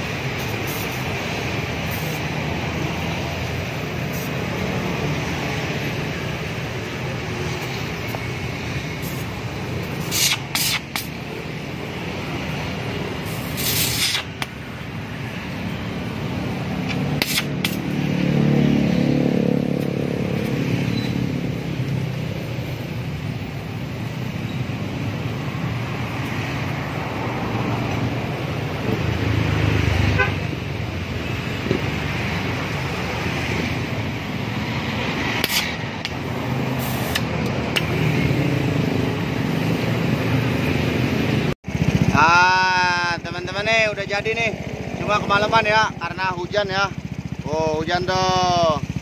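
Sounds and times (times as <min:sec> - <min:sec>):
welding arc crackling hiss: 0:00.0 - 0:02.9, 0:08.9 - 0:11.6, 0:13.1 - 0:14.6, 0:36.8 - 0:38.1
vehicle drone: 0:00.0 - 0:46.2
road traffic: 0:00.0 - 0:49.0.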